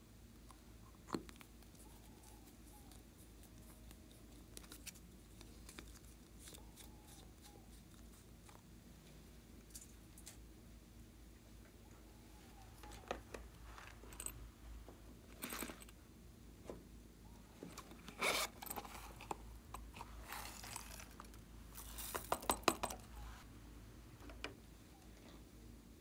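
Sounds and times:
zipper rasp: 18.1s - 19.1s
handling taps and clicks: 22.0s - 23.1s.

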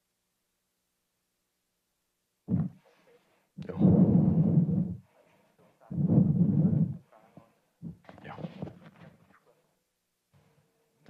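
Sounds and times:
microphone rubbing and bumping: 2.5s - 2.9s, 3.6s - 5.2s, 5.8s - 9.4s.

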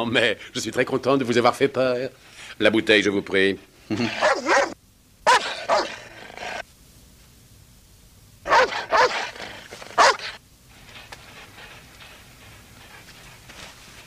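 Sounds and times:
dogs barking: 4.0s - 6.6s, 8.4s - 10.4s.

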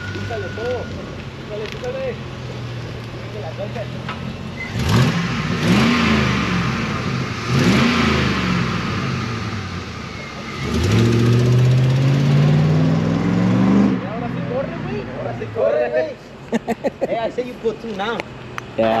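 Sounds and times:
car engine revving: 2.5s - 15.5s.

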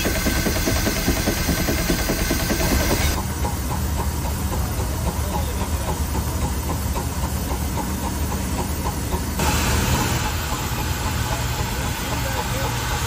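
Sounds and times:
loud steam hiss: 0.0s - 3.3s, 9.4s - 13.0s
steam engine rhythmic rumble: 0.0s - 13.0s.

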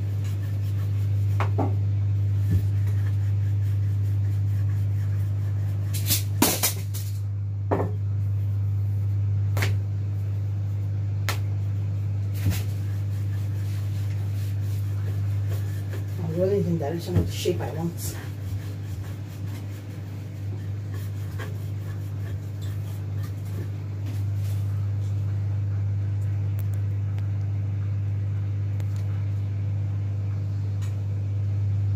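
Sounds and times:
low electrical hum: 0.0s - 31.9s
rolling pin knocking on countertop: 1.4s - 1.8s, 7.7s - 8.0s.

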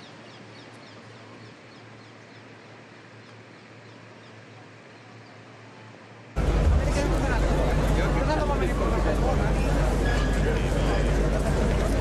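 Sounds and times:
birds chirping faintly: 0.0s - 6.3s
steady hiss and low hum: 0.0s - 12.0s.

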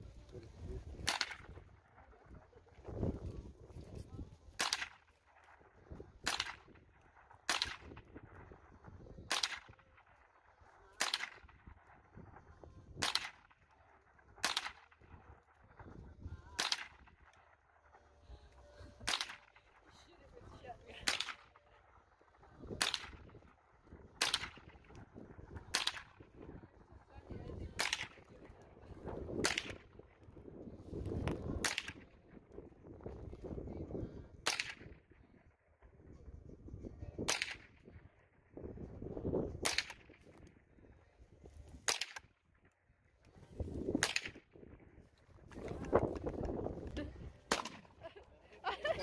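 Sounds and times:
rifle shots: 14.4s - 14.9s.

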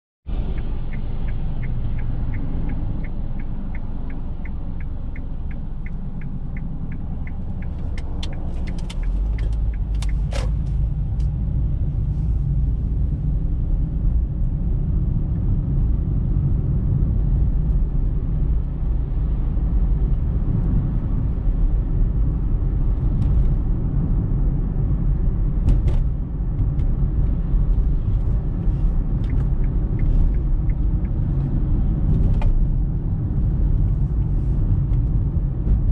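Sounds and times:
car engine and tyre rumble: 0.2s - 35.9s
turn signal ticking: 0.4s - 11.9s, 26.4s - 35.9s.

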